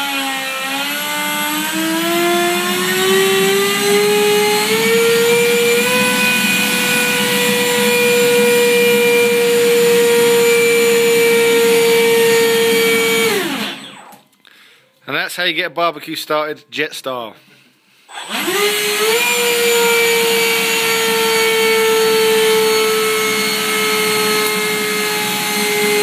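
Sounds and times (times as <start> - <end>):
model jet engine whine: 2.7 - 14.2.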